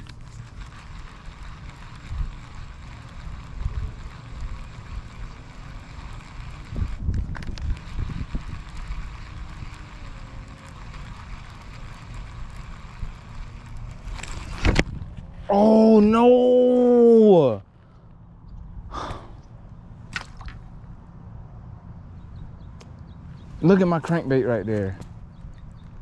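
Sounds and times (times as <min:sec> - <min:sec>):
wind buffeting microphone: 0:00.6 - 0:15.4.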